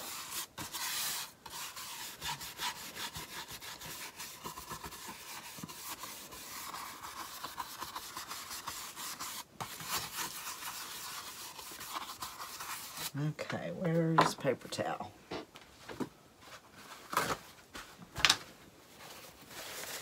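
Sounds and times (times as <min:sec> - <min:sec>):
scratchy rubbing on wood: 0:00.0 - 0:13.2.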